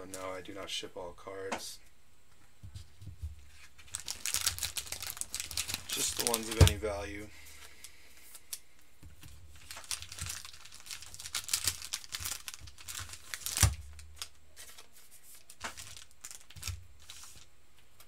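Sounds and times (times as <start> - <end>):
foil packaging crinkling and tearing: 3.5 - 6.8, 9.2 - 17.5.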